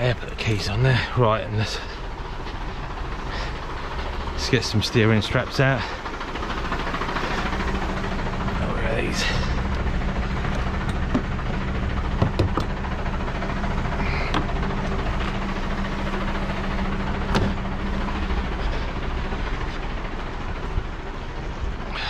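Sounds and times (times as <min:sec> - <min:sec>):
diesel truck engine idling: 0:00.0 - 0:22.0
metal clanks and knocks: 0:09.7 - 0:13.0.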